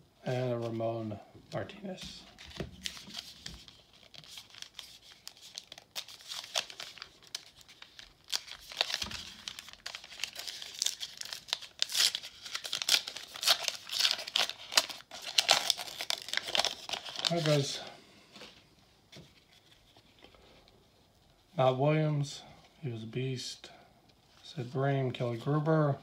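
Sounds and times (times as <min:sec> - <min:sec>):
foil wrapper crinkling and tearing: 0:02.4 - 0:17.8.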